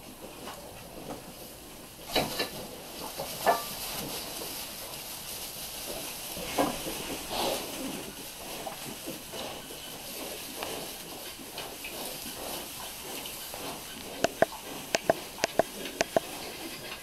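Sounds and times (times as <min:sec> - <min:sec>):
rustling in straw: 0:01.1 - 0:16.8
piglets suckling: 0:06.1 - 0:17.0.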